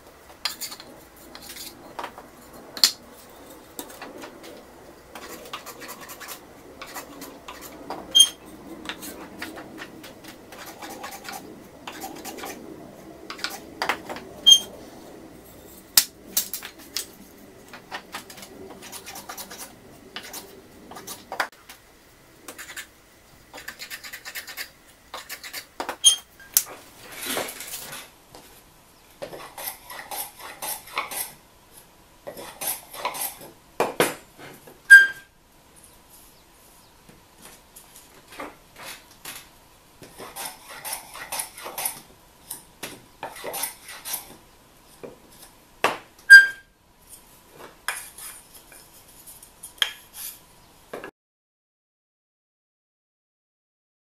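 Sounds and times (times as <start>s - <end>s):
hand plane strokes on wood: 2.8s - 12.6s, 15.6s - 21.5s, 29.2s - 31.3s, 43.2s - 44.4s.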